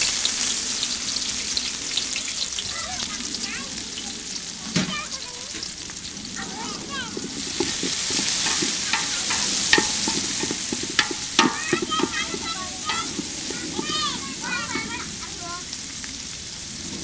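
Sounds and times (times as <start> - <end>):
onions sizzling in oil: 0.0 - 17.0
spoon scraping metal pot: 6.7 - 15.2.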